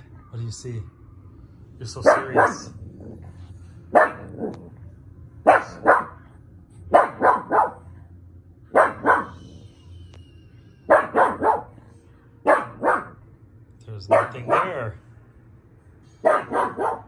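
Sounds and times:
dog barking sharply: 2.0 - 2.8, 3.9 - 4.6, 5.5 - 6.2, 6.9 - 7.8, 8.7 - 9.4, 10.9 - 11.7, 12.5 - 13.2, 14.1 - 15.0, 16.2 - 17.0.

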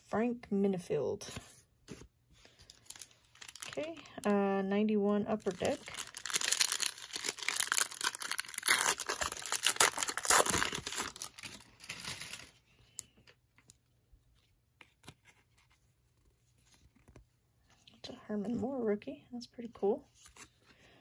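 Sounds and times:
foil wrapper tearing and crinkling: 2.7 - 4.0, 5.4 - 12.6.

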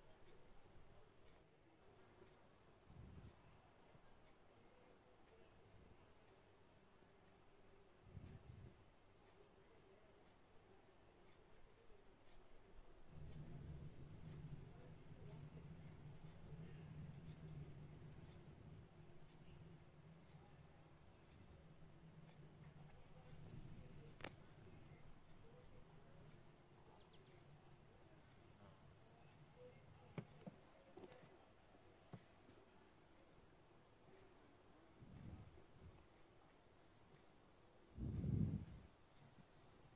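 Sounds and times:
cricket chirping: 0.0 - 39.9
faint clicks: 8.2 - 27.8.

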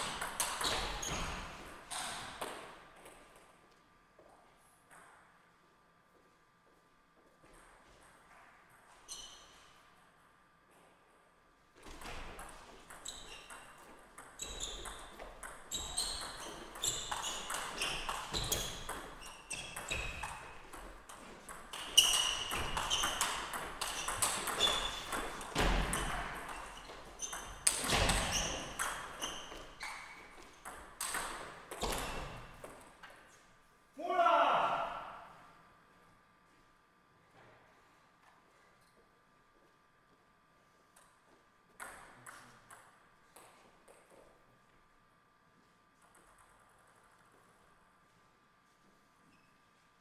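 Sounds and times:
table tennis ball pinging: 0.0 - 1.3, 12.0 - 32.8.

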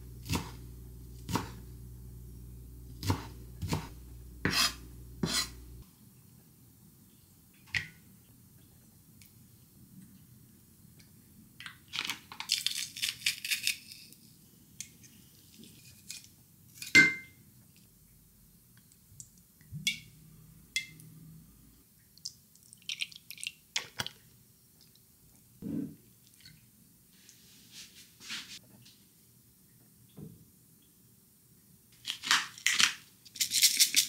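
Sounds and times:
spoon scraping glass jug: 4.4 - 5.6.

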